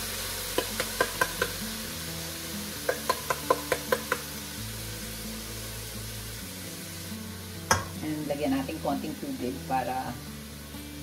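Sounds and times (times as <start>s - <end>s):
food sizzling in pot: 0.0s - 11.0s
hand slapping metal can: 0.5s - 1.6s, 2.8s - 4.3s, 7.7s - 7.9s.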